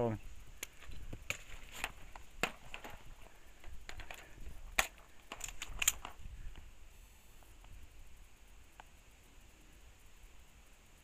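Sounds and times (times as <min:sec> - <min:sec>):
paintball magazine clicks and knocks: 0:00.6 - 0:06.2.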